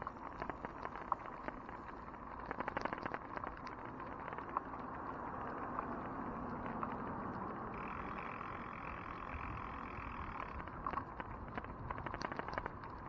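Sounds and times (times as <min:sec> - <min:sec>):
tyre and road noise: 0:00.4 - 0:13.0
bicycle clicks and rattles: 0:07.0 - 0:12.8.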